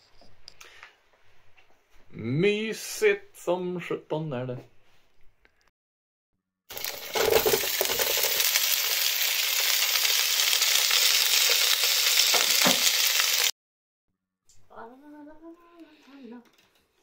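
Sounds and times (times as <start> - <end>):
food sizzling in a frying pan: 6.7 - 13.5.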